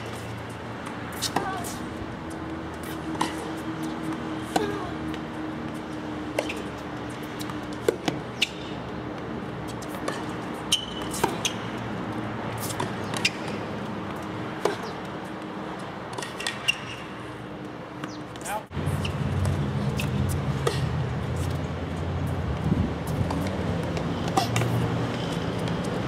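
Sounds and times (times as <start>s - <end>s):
tennis ball bouncing on court: 0.0s - 15.4s, 17.9s - 21.6s, 23.0s - 26.0s
tennis ball struck by racket: 4.4s - 4.9s, 7.7s - 8.6s, 9.9s - 11.7s.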